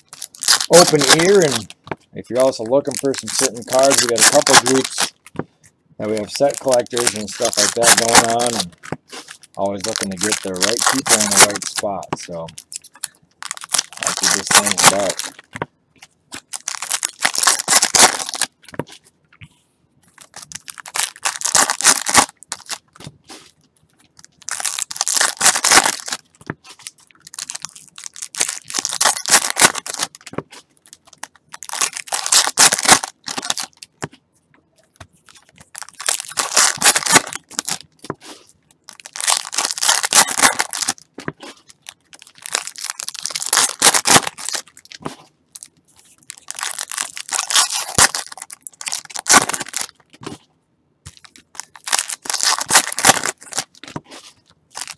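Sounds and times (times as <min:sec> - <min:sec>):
wrappers torn and crinkled: 0:00.0 - 0:05.3, 0:06.0 - 0:18.7, 0:20.1 - 0:34.0, 0:34.9 - 0:50.4, 0:51.1 - 0:54.9.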